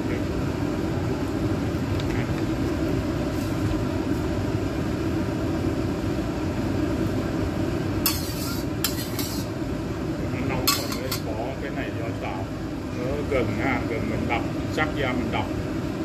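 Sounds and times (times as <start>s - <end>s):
gas stove burners rushing: 7.6s - 12.3s.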